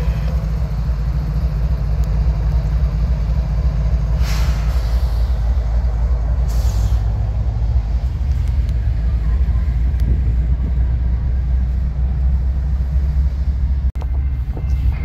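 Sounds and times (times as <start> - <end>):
diesel locomotive engine rumble: 0.0 - 15.0
air hisses: 4.2 - 5.5, 6.4 - 7.1.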